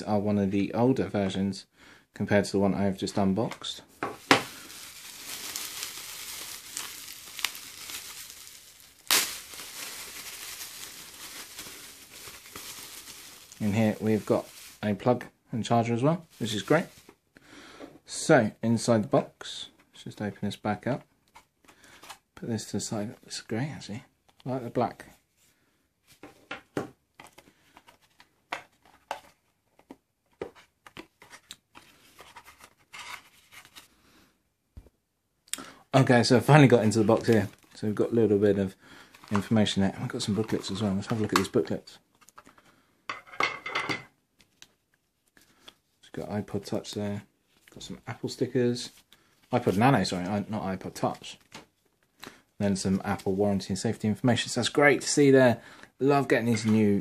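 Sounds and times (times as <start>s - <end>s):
bubble wrap crinkling: 4.2s - 15.2s, 16.3s - 17.1s, 39.1s - 41.6s.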